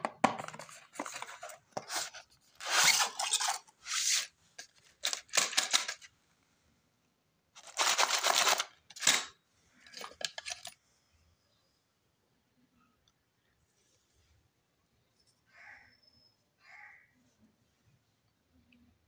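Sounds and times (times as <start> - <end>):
cardboard box opening: 0.4 - 4.3
metal jewellery clinking and scraping: 5.0 - 6.1, 7.6 - 10.8.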